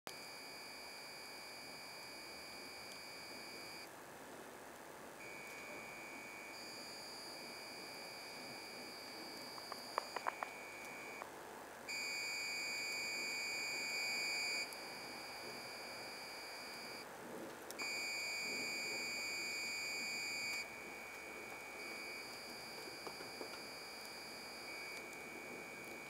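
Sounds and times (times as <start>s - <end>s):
sharp clicks: 9.5s - 11.3s.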